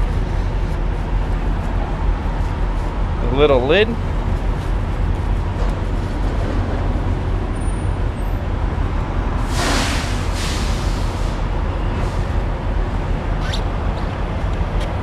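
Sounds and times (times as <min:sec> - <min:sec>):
vehicle engines idling: 0:00.0 - 0:15.0
short hiss: 0:09.5 - 0:11.4.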